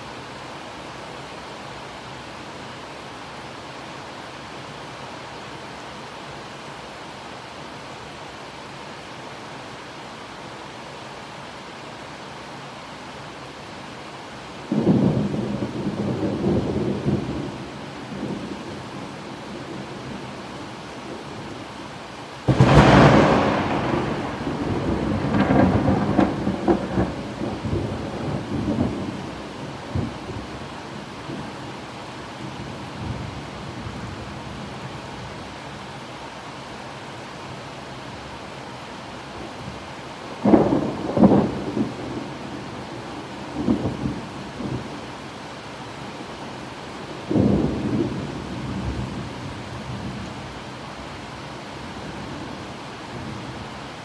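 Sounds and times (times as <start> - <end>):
steady rain: 0.0 - 54.0
thunderclap rumbling: 22.5 - 30.6, 40.4 - 45.0, 47.1 - 49.4.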